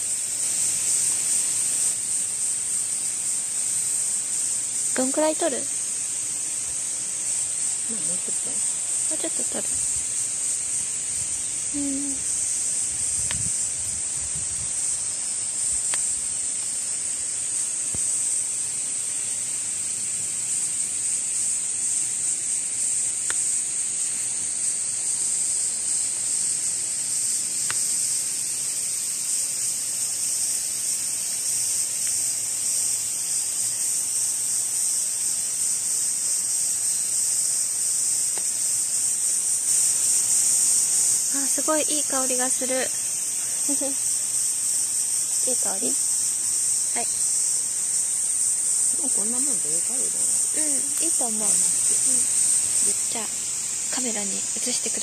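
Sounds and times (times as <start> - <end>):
cicadas shrilling: 0.0 - 55.0
faint ticks: 13.2 - 13.5, 15.8 - 16.8, 23.2 - 23.5, 27.6 - 27.9, 38.3 - 38.5.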